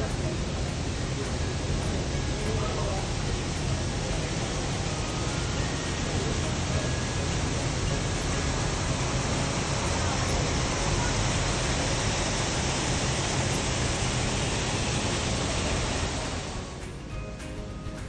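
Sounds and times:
loud rushing noise: 0:00.0 - 0:17.0
music: 0:16.3 - 0:18.0.

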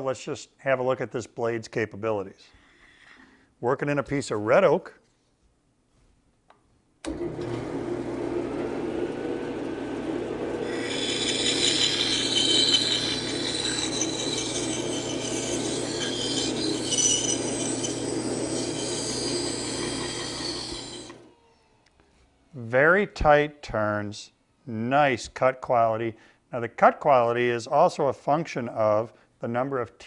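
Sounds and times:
band saw motor hum: 0:07.1 - 0:21.7
saw blade rasping through wood: 0:10.6 - 0:21.2.

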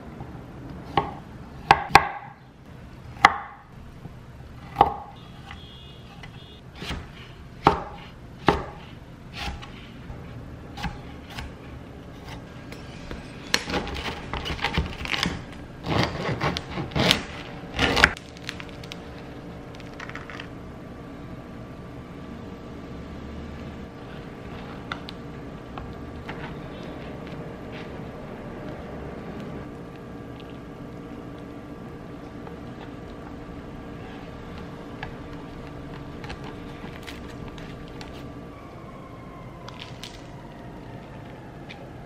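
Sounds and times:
knife chopping on wooden board: 0:00.9 - 0:02.3, 0:06.8 - 0:09.9.

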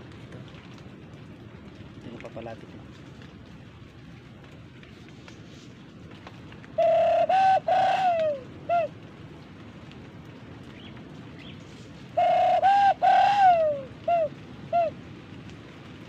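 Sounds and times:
dove-like cooing call: 0:06.7 - 0:09.0, 0:11.6 - 0:15.1.

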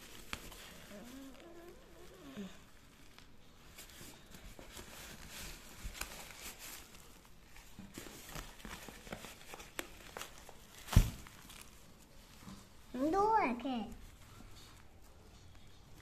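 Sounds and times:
plastic wrapping crinkling: 0:00.0 - 0:13.0
cardboard tearing and crackling: 0:02.8 - 0:12.0.

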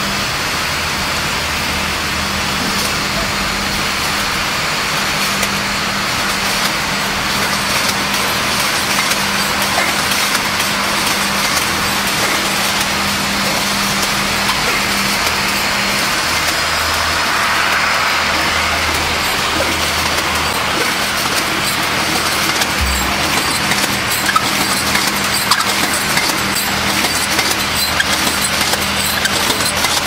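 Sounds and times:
machinery running: 0:00.2 - 0:30.0
steady hum: 0:08.3 - 0:25.3.

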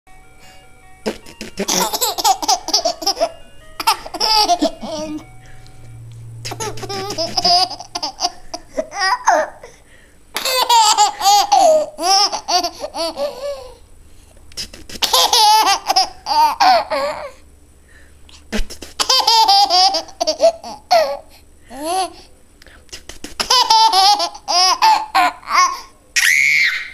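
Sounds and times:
baby giggling: 0:01.0 - 0:05.3, 0:06.5 - 0:09.8, 0:10.4 - 0:13.8, 0:14.6 - 0:17.4, 0:18.6 - 0:22.2, 0:23.0 - 0:25.9
baby spitting noise: 0:18.5 - 0:19.0.

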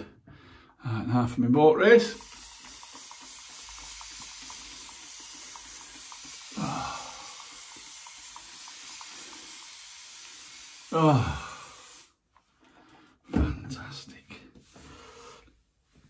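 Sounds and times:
tap water running into basin: 0:01.9 - 0:12.2.

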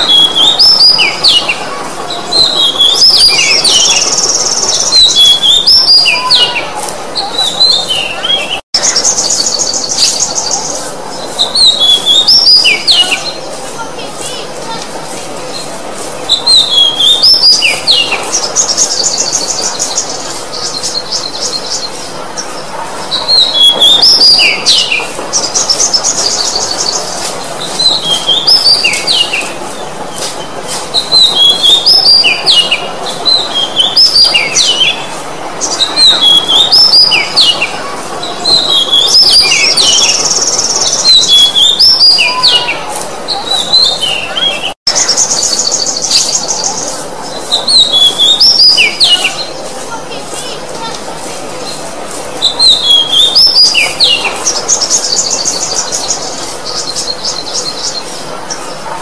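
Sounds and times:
bird whistling song: 0:00.0 - 0:01.5, 0:02.3 - 0:06.6, 0:11.4 - 0:13.4, 0:16.3 - 0:21.9, 0:23.2 - 0:29.5, 0:31.0 - 0:35.0, 0:35.7 - 0:37.7, 0:38.4 - 0:42.8, 0:47.5 - 0:49.5, 0:52.4 - 0:58.2.

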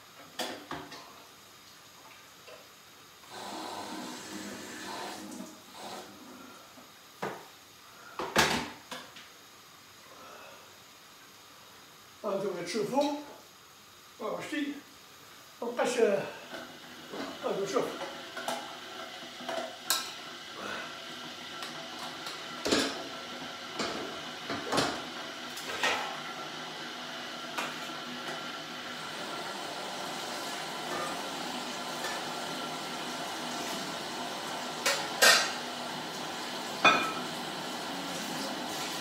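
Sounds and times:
metal pans clanking: 0:34.8 - 0:35.6, 0:36.8 - 0:37.4.

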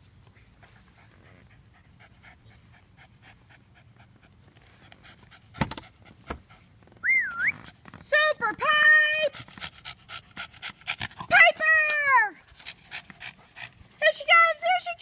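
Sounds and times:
dog panting: 0:00.5 - 0:06.9, 0:09.0 - 0:15.0.

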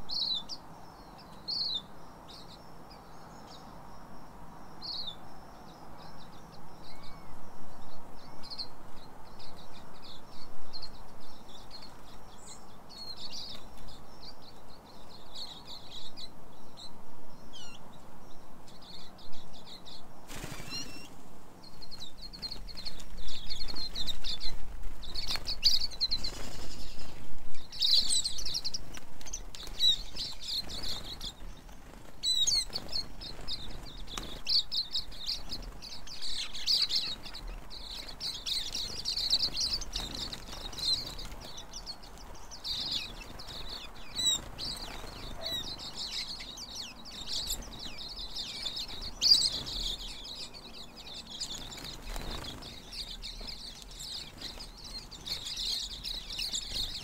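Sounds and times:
birds twittering: 0:00.0 - 0:57.0
wings fluttering: 0:20.2 - 0:46.4, 0:47.1 - 0:57.0.

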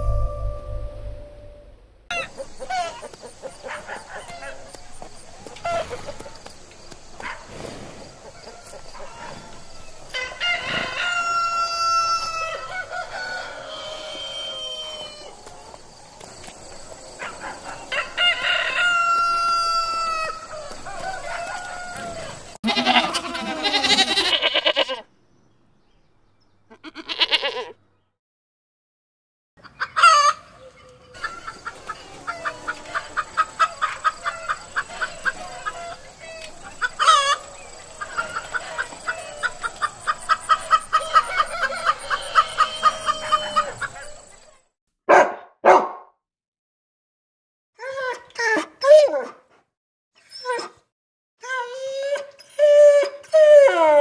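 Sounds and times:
rooster crowing: 0:08.4 - 0:15.4, 0:17.8 - 0:23.7, 0:36.9 - 0:44.3
hen clucking: 0:31.1 - 0:44.5.

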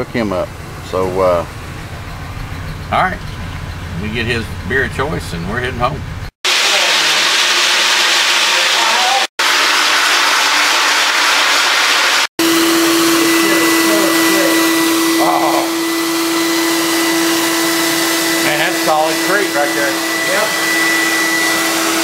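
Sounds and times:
floor machine grinding: 0:06.5 - 0:22.0
wet vacuum motor whine: 0:06.5 - 0:22.0.

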